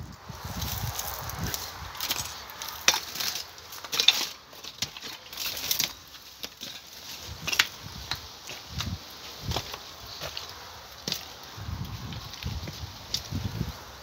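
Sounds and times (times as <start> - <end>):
footsteps crunching over rubble: 0.0 - 13.8
debris clinking and crackling: 1.5 - 8.9.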